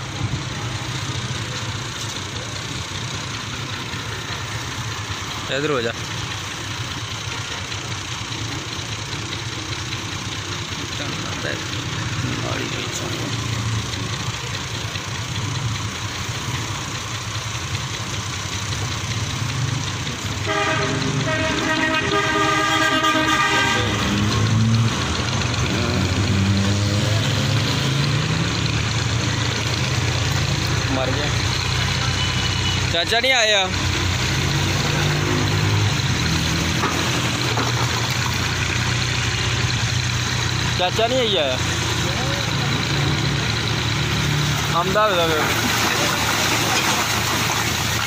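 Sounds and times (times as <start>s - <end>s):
diesel engine idling: 0.0s - 48.0s.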